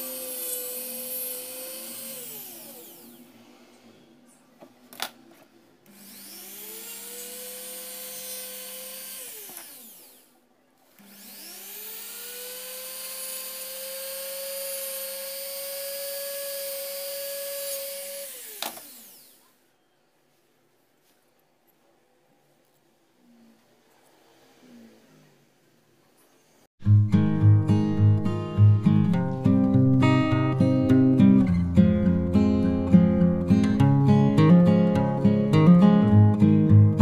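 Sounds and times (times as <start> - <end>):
rotary tool motor whine: 0.0 - 3.3, 5.9 - 10.3, 11.0 - 19.5.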